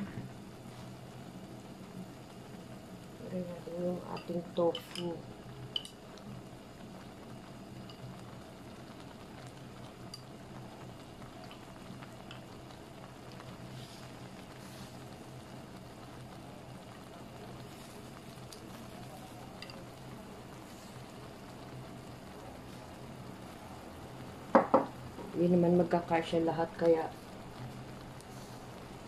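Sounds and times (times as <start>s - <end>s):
pot of broth bubbling: 0.0s - 29.0s.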